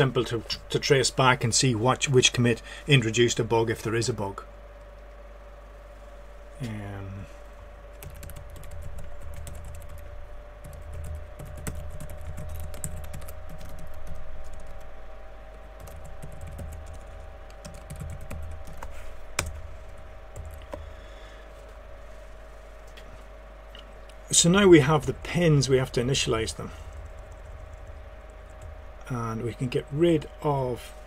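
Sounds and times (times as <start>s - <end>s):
faint steady hum: 0.0s - 31.0s
keyboard typing: 7.9s - 14.9s, 15.8s - 20.9s, 26.8s - 28.8s.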